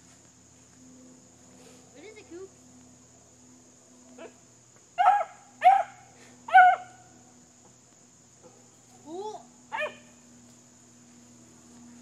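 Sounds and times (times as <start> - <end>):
puppy barking: 5.0 - 7.0, 9.7 - 10.1.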